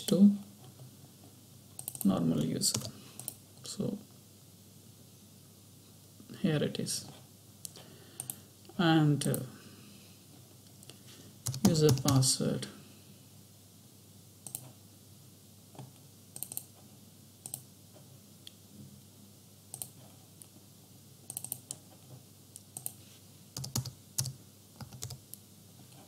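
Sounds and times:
computer keyboard keystrokes: 0:01.8 - 0:02.1, 0:02.7 - 0:03.4, 0:11.4 - 0:12.2, 0:14.4 - 0:14.7, 0:16.4 - 0:16.7, 0:21.3 - 0:21.8, 0:23.6 - 0:25.2.

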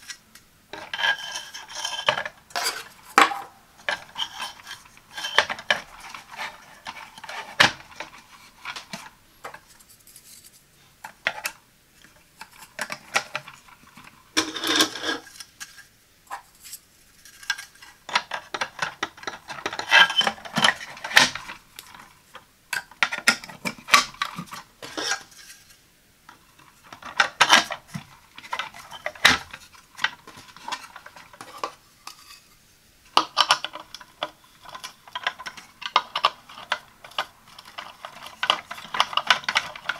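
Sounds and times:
hard plastic clicks and clacks: 0:33.1 - 0:39.9.

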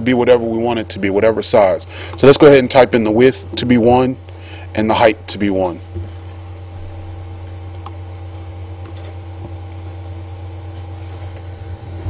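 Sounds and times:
steady low hum: 0:00.0 - 0:12.0
computer keyboard and mouse clicks: 0:07.4 - 0:10.3.

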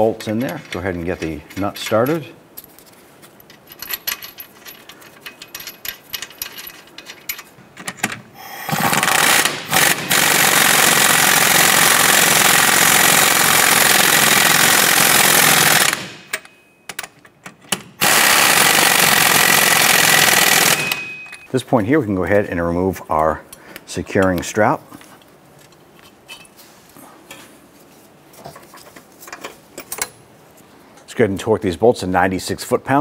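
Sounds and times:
impact wrench hammering: 0:08.7 - 0:17.0, 0:18.0 - 0:21.5.

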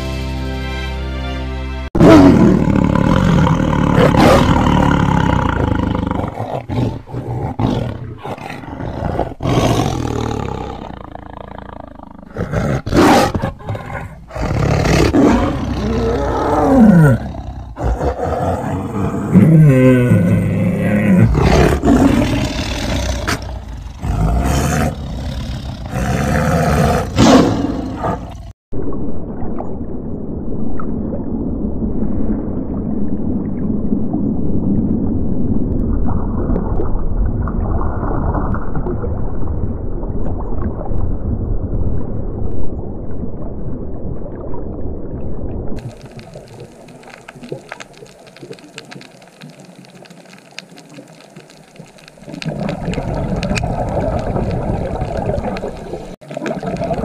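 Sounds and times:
tigers growling and roaring: 0:02.0 - 0:28.5
underwater rumble of moving water: 0:27.7 - 0:57.0
fine crackling hiss: 0:45.8 - 0:56.9.

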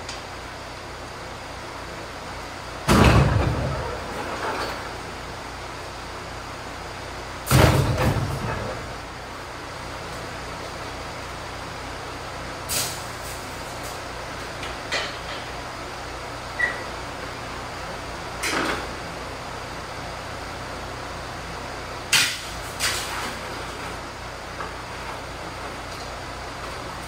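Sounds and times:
steady background noise: 0:00.0 - 0:27.0
brief high squeak: 0:16.6 - 0:16.9.

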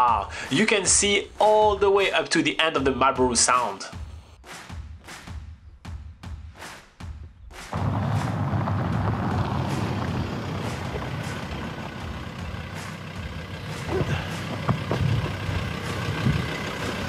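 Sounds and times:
truck engine running: 0:07.7 - 0:17.0
tyres rolling on gravel: 0:07.7 - 0:17.0.

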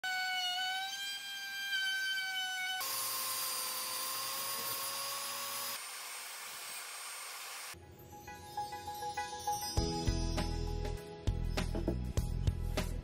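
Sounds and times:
woodworking power tool whining: 0:00.0 - 0:07.8.

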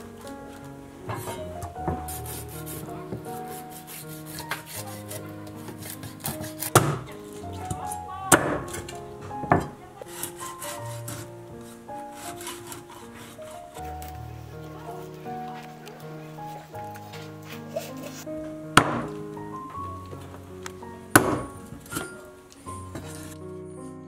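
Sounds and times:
soft background music: 0:00.0 - 0:24.0
cleaver scraping fish: 0:02.1 - 0:06.8, 0:10.0 - 0:14.3
cleaver chopping into board: 0:05.8 - 0:07.1, 0:18.8 - 0:19.1.

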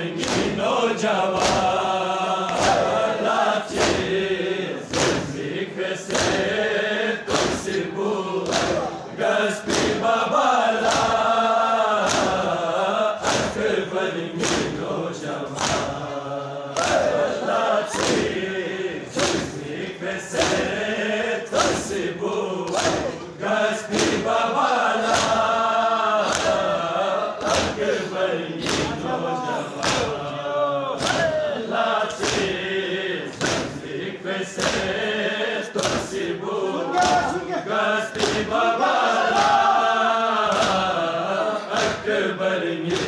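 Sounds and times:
men chanting in chorus: 0:00.0 - 0:43.0
chest-beating slaps: 0:00.2 - 0:00.7, 0:01.3 - 0:03.0, 0:03.7 - 0:04.2, 0:04.9 - 0:05.5, 0:06.1 - 0:06.5, 0:07.3 - 0:07.8, 0:08.4 - 0:09.0, 0:09.6 - 0:10.1, 0:10.8 - 0:11.2, 0:12.0 - 0:12.5, 0:13.2 - 0:13.7, 0:14.4 - 0:14.8, 0:15.5 - 0:16.0, 0:16.8 - 0:17.2, 0:17.9 - 0:18.4, 0:19.1 - 0:19.7, 0:20.3 - 0:20.8, 0:22.6 - 0:23.2, 0:23.9 - 0:24.3, 0:25.0 - 0:25.5, 0:26.2 - 0:26.7, 0:27.4 - 0:28.0, 0:28.6 - 0:29.1, 0:29.8 - 0:30.2, 0:31.0 - 0:31.4, 0:32.0 - 0:32.6, 0:33.3 - 0:33.8, 0:34.6 - 0:35.0, 0:35.8 - 0:36.2, 0:36.9 - 0:37.4, 0:38.0 - 0:38.6, 0:39.2 - 0:39.7, 0:40.4 - 0:40.9, 0:41.7 - 0:42.1.

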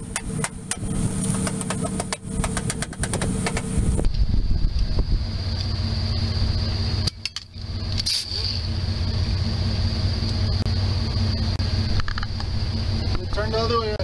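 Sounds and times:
low hum: 0:00.0 - 0:14.0
pneumatic cutoff tool whine: 0:03.4 - 0:09.6.

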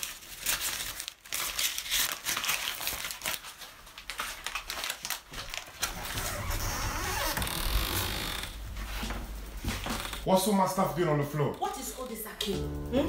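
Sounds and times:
banknotes crumpling and rustling: 0:00.0 - 0:06.5
low rumble of movement: 0:05.9 - 0:10.3.

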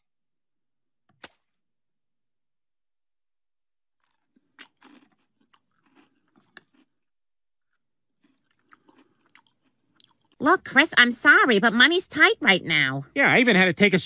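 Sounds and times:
crunchy chewing of cereal: 0:04.0 - 0:10.4.

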